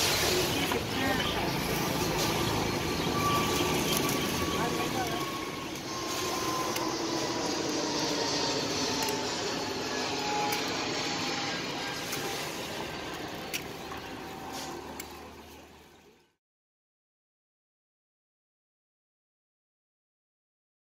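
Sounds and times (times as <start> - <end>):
street traffic hum: 0.0 - 16.3.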